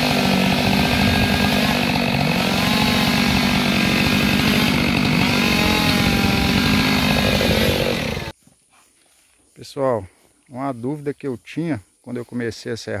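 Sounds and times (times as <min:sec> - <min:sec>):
chainsaw running: 0:00.0 - 0:08.4.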